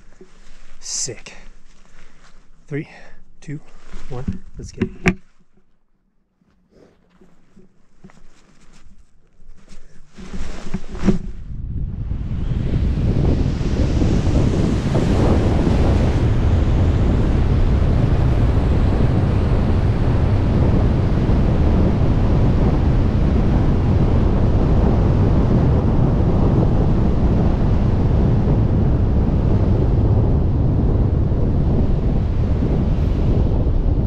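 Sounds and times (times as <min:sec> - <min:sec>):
wind buffeting microphone: 0:10.2 - 0:34.0.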